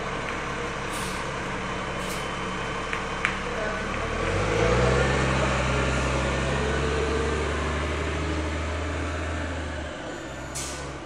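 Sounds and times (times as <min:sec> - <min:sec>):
bus diesel engine pulling away: 0:00.0 - 0:11.0.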